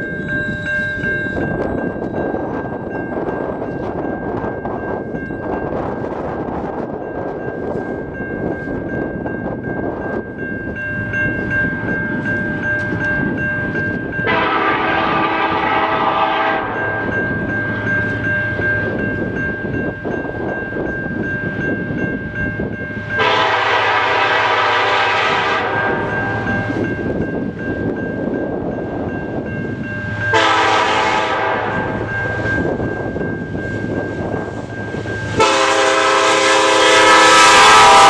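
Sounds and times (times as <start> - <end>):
level crossing bell ringing: 0.0 - 5.5
locomotive horn blasts: 14.2 - 16.8, 23.2 - 26.7, 30.3 - 32.0, 35.4 - 38.0.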